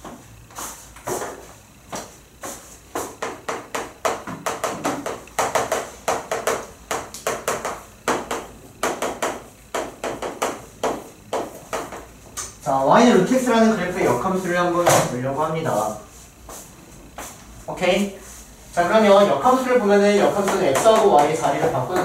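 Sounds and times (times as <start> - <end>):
footsteps on hard floor: 0.0 - 3.5, 15.7 - 17.5
chalk tapping on blackboard: 0.5 - 12.1, 19.5 - 22.0.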